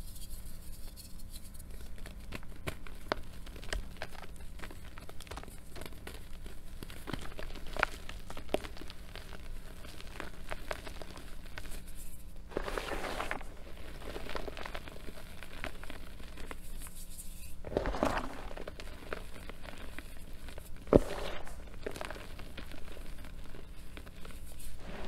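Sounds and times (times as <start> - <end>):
powdery rustling: 0.6 - 25.0
chalk crunching in hands: 10.8 - 25.0.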